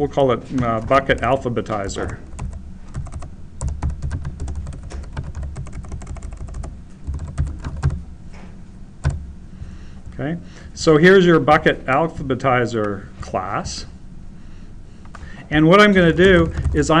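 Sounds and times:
keyboard typing: 0.5s - 8.0s, 16.1s - 17.0s.

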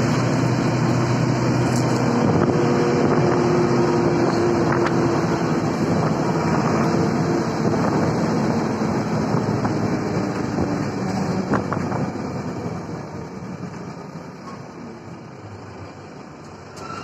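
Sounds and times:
road noise: 0.0s - 17.0s
vehicle engine hum: 0.0s - 17.0s
wind on microphone: 2.0s - 12.4s.

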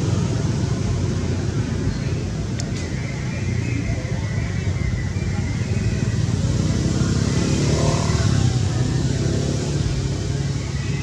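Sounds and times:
vehicle passing by: 5.3s - 11.0s.

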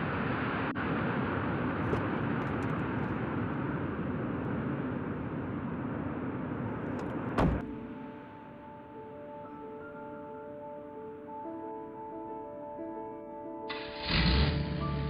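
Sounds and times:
car door slamming: 1.8s - 2.8s, 6.9s - 7.8s.

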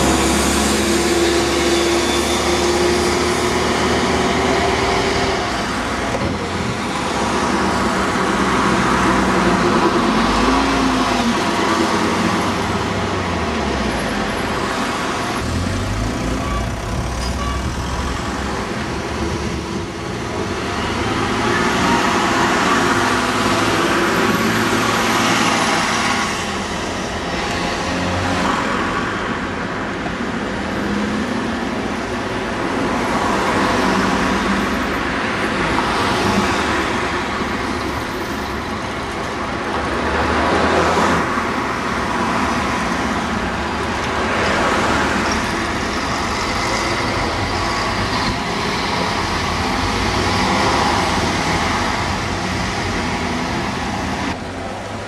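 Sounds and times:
diesel engines running: 0.0s - 27.8s
passing traffic: 0.0s - 55.0s.

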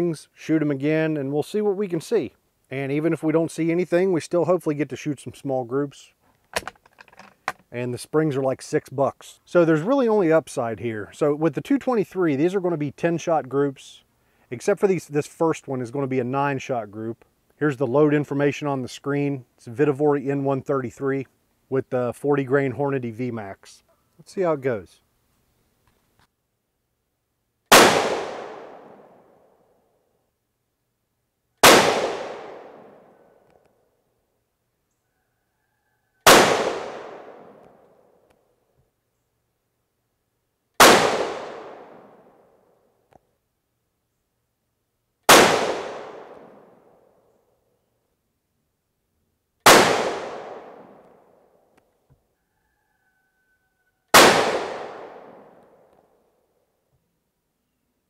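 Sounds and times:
rifle shots with echo: 27.7s - 29.2s, 31.6s - 33.2s, 36.3s - 37.6s, 40.8s - 42.3s, 45.3s - 46.8s, 49.6s - 51.0s, 54.2s - 55.6s.

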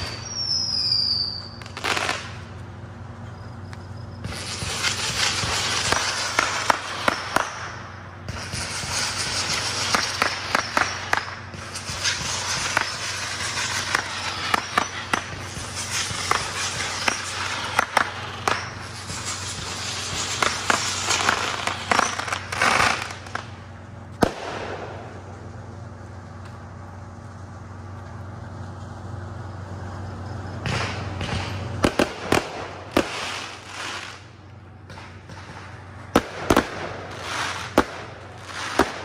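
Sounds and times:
fireworks crackling and popping: 0.0s - 29.2s, 29.8s - 39.0s.

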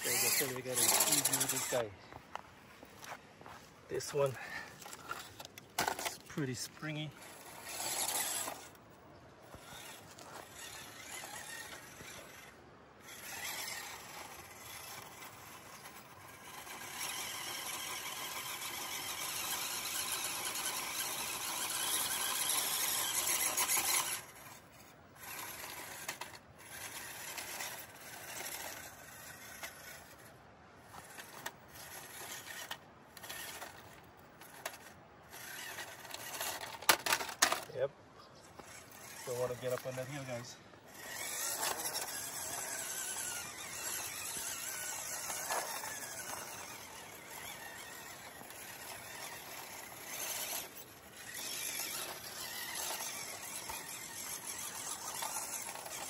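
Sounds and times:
toy car electric motor whining: 0.0s - 1.9s, 3.9s - 56.0s.

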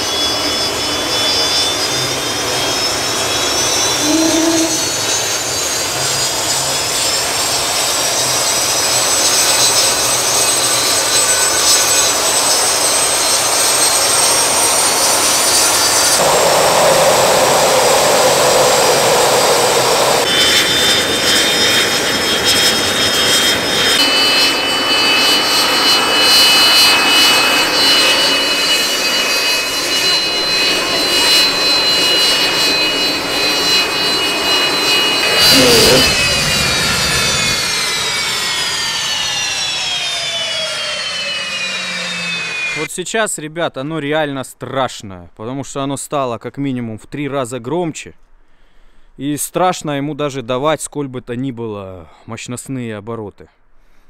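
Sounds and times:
gas turbine engine whine: 0.0s - 42.9s
rush of noise: 15.7s - 21.9s, 23.4s - 41.7s.

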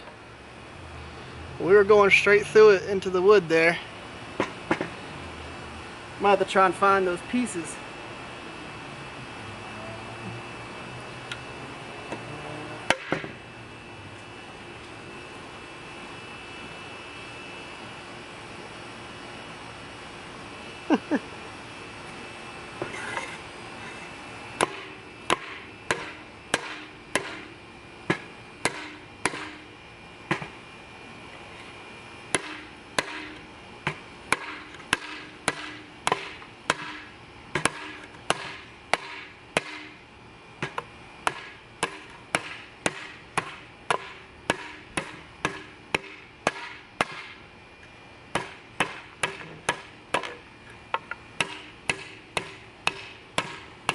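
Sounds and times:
knife chopping into wood: 12.9s - 13.4s, 24.6s - 27.5s, 28.1s - 29.6s, 32.3s - 37.0s, 37.6s - 39.9s, 40.6s - 47.4s, 48.3s - 50.4s, 51.4s - 53.9s.

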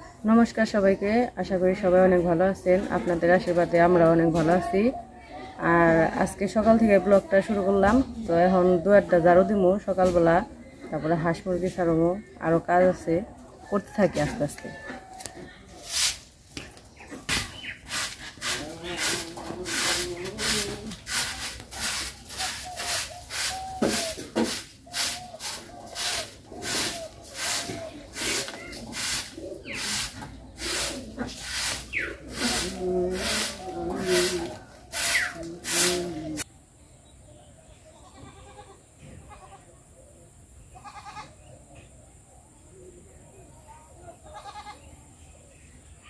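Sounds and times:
broom sweeping the ground: 15.3s - 36.5s
goat bleating: 40.8s - 41.3s, 44.3s - 44.8s.

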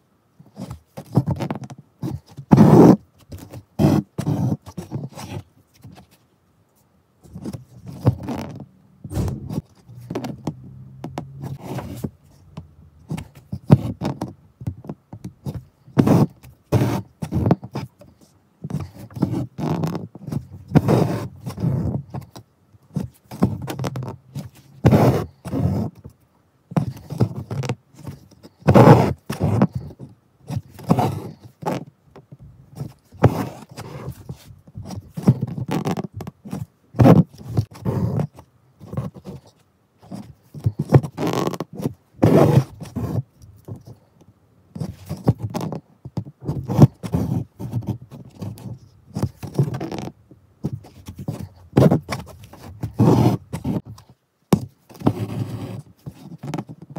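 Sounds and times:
thread rasping through fabric: 7.3s - 18.1s, 18.7s - 26.0s, 40.0s - 44.0s, 44.8s - 56.9s.

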